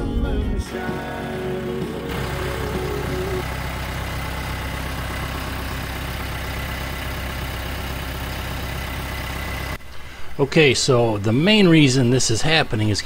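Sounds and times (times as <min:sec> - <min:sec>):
tractor diesel engine idling: 0:00.7 - 0:09.8.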